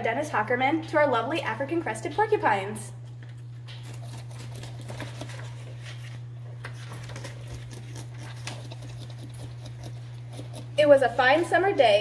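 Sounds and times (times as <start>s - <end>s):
steady low hum: 0.0s - 12.0s
animal chewing crunches: 3.1s - 11.6s.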